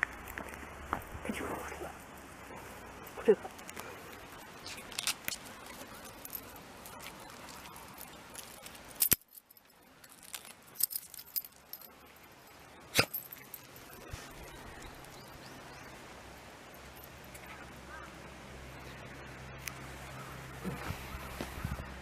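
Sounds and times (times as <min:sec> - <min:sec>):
dog collar tag jingling: 0:05.0 - 0:15.4.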